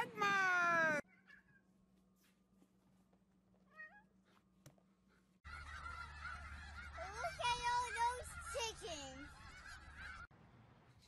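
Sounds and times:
geese calling: 0:05.5 - 0:10.3.

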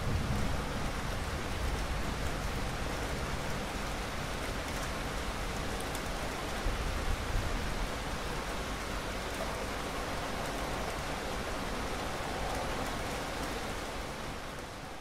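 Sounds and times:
steady rain hiss: 0:00.0 - 0:15.0.

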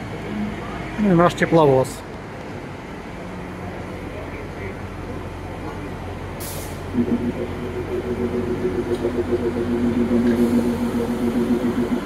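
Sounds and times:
diesel locomotive engine running: 0:02.2 - 0:12.0
air hiss: 0:06.4 - 0:07.0.

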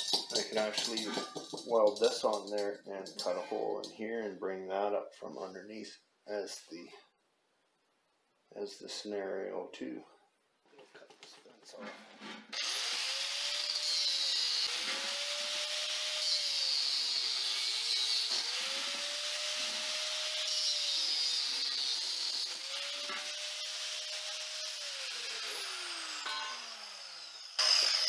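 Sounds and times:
angle grinder cutting metal: 0:00.0 - 0:03.9, 0:12.5 - 0:28.0
grinder winding down: 0:12.5 - 0:28.0.

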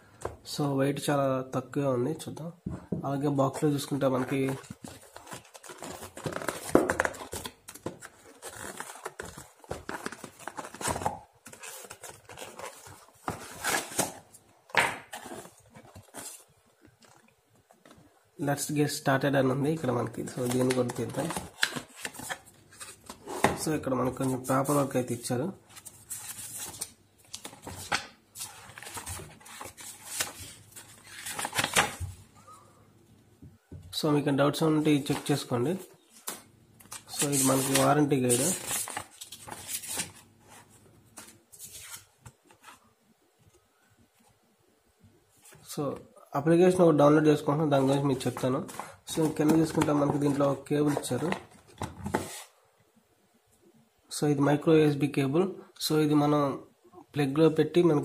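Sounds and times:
cardboard packaging rustling: 0:04.2 - 0:18.0, 0:25.7 - 0:32.3, 0:34.9 - 0:42.8, 0:47.8 - 0:52.5.

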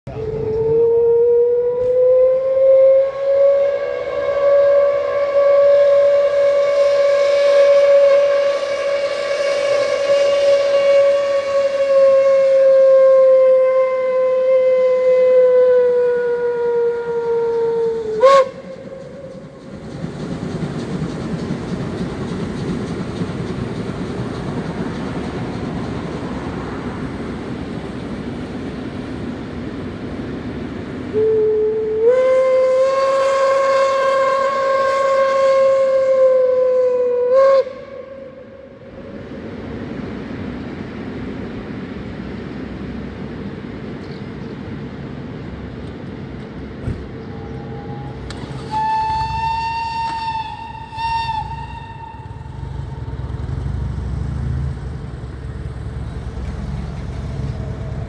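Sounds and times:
steam locomotive whistle: 0:00.1 - 0:19.6, 0:31.1 - 0:39.0, 0:47.3 - 0:53.5
train running rumble: 0:01.8 - 0:58.0.

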